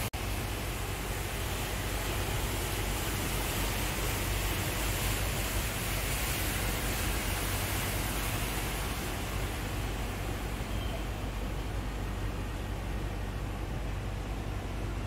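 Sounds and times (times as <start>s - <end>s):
heavy rain and floodwater rushing: 0.0s - 15.0s.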